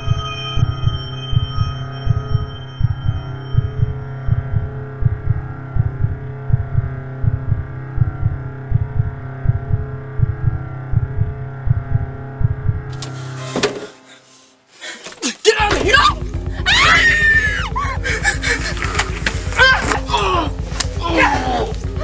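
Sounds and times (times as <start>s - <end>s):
heartbeat-like double thump: 0.0s - 12.9s
sustained drone: 0.0s - 13.4s, 15.8s - 22.0s.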